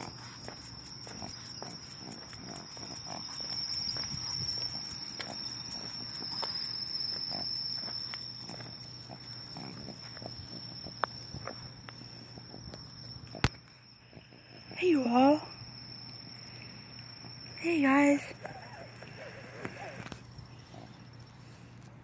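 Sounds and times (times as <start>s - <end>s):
footsteps on pavement: 0.0s - 12.0s
high-pitched insect chorus: 0.0s - 21.2s
thin high tone: 0.0s - 21.7s.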